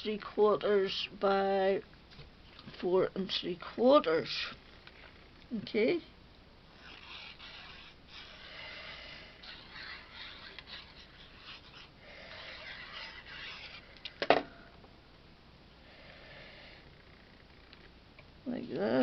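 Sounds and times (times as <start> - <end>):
glue bottle tip scratching cardstock: 6.8 - 14.0.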